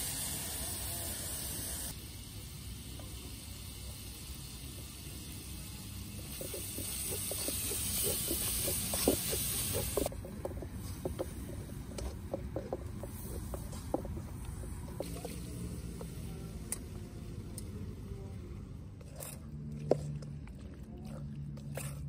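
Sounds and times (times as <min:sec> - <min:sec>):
high hiss: 0:00.0 - 0:05.6.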